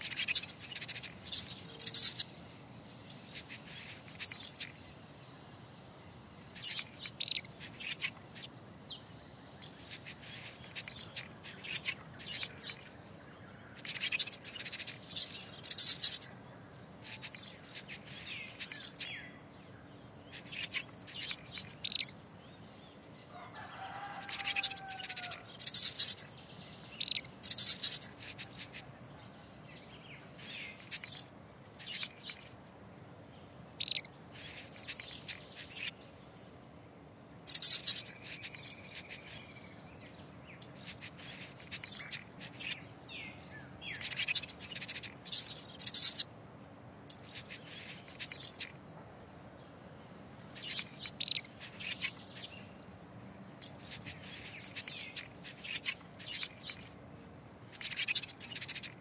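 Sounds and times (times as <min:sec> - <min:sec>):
high-pitched mouse squeaks: 0:00.0 - 0:02.3, 0:03.1 - 0:04.8, 0:06.5 - 0:08.5, 0:09.6 - 0:12.9, 0:13.8 - 0:16.3, 0:17.0 - 0:19.1, 0:20.3 - 0:22.1, 0:23.8 - 0:26.3, 0:27.0 - 0:28.9, 0:30.4 - 0:32.5, 0:33.8 - 0:36.0, 0:37.5 - 0:39.4, 0:40.6 - 0:42.8, 0:43.9 - 0:46.2, 0:47.1 - 0:48.8, 0:50.6 - 0:52.5, 0:53.6 - 0:57.0, 0:57.7 - 0:59.0
faint background hiss: 0:00.0 - 0:59.0.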